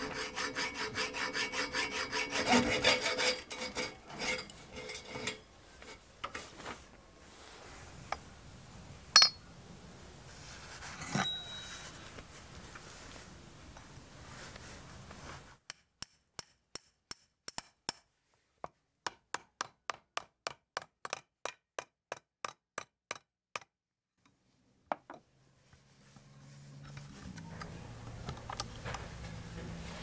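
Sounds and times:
hammer striking hatchet on metal: 9.2 - 9.4.

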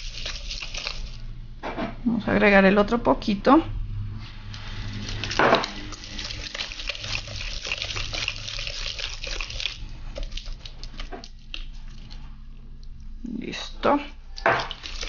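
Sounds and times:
whisk beating batter in steel bowl: 0.0 - 1.2, 4.5 - 11.8, 14.6 - 15.0.

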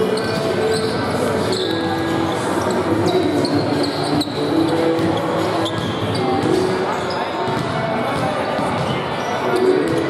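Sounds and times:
basketballs bouncing on wooden floor: 4.8 - 6.8, 7.4 - 10.0.

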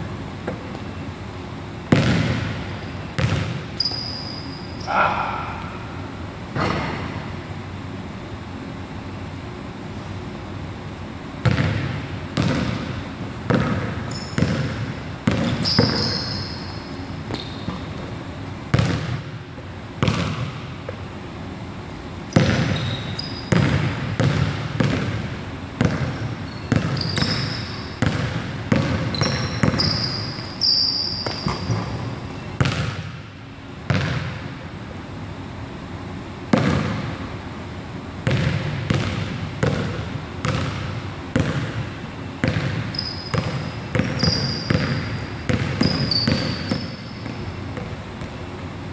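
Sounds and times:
basketball bouncing on wooden floor: 1.9 - 2.5, 3.2 - 4.0, 11.4 - 16.4, 18.7 - 19.3, 20.0 - 20.7, 22.3 - 30.4, 31.0 - 33.2, 33.9 - 34.4, 36.5 - 37.1, 38.2 - 41.8, 42.4 - 48.3
sneaker squeaks: 1.9 - 5.6, 13.5 - 19.2, 22.3 - 23.9, 25.8 - 33.0, 42.4 - 48.0.

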